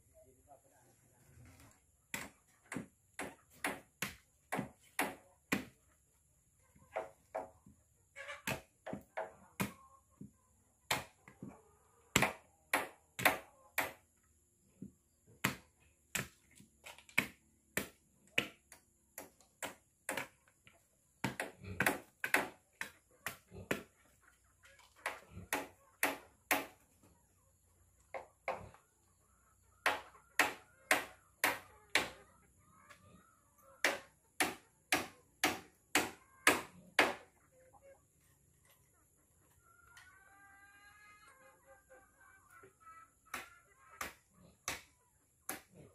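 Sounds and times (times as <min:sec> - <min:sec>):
sharp wooden knocks: 0:21.2 - 0:22.6.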